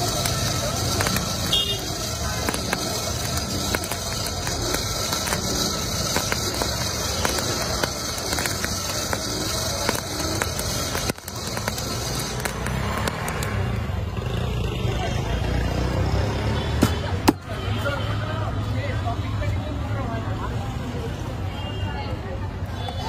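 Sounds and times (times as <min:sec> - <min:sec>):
small clicks: 0:00.0 - 0:13.8
hand-cranked blower whirring: 0:00.0 - 0:14.4
embers crackling: 0:00.0 - 0:17.6.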